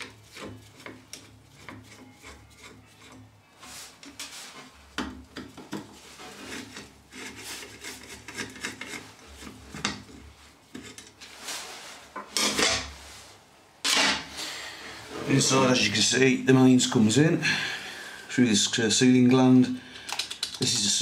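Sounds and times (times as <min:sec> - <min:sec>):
scraping and rubbing: 0:00.0 - 0:04.9, 0:05.9 - 0:14.3, 0:14.9 - 0:15.9.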